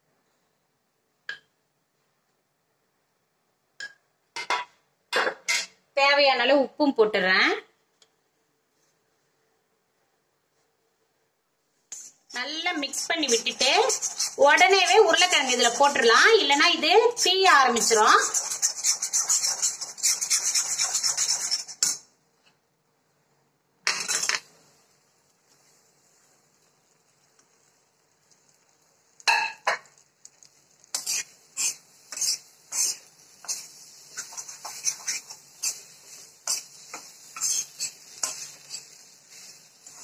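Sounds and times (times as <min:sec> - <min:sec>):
metal spatula scraping iron pan: 0:12.7 - 0:16.1, 0:17.7 - 0:22.0, 0:23.9 - 0:24.4, 0:30.9 - 0:40.0.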